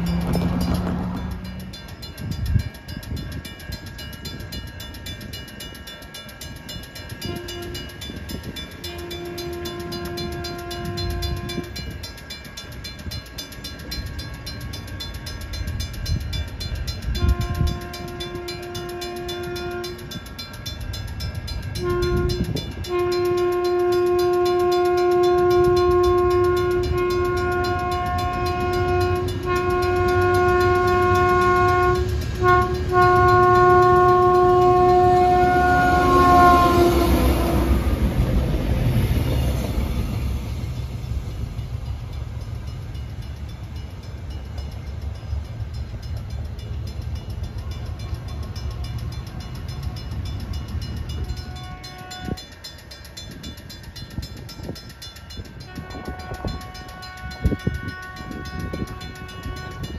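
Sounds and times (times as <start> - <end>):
train running rumble: 0.0 - 59.9
train horn blasts: 7.1 - 12.1, 17.0 - 20.4, 21.6 - 38.3, 51.0 - 52.6, 54.6 - 59.9.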